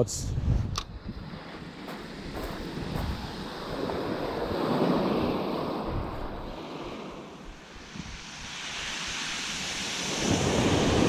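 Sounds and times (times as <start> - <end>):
wind buffeting microphone: 0.0 - 11.0
water hissing over stones: 7.3 - 11.0.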